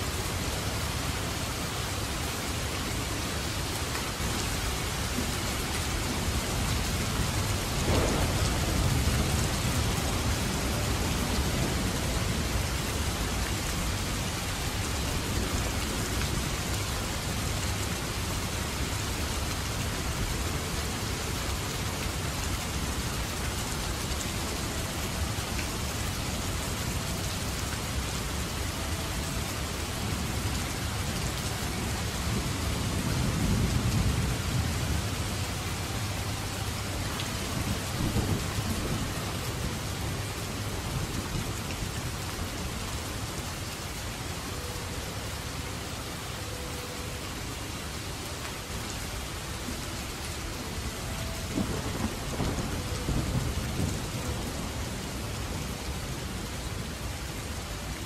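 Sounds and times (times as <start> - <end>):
heavy rain: 0.0 - 58.0
thunderclap rumbling: 6.1 - 13.7, 51.5 - 54.9.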